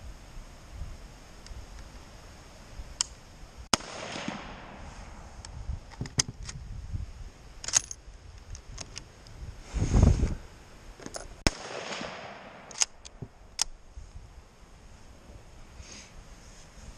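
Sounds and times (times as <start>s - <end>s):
rifle shot with long echo: 3.7s - 4.9s, 11.4s - 13.0s.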